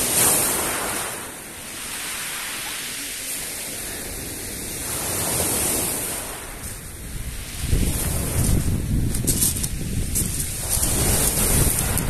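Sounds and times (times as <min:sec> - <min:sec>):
sea surf washing in: 0:00.0 - 0:12.0
wind buffeting microphone: 0:03.4 - 0:12.0.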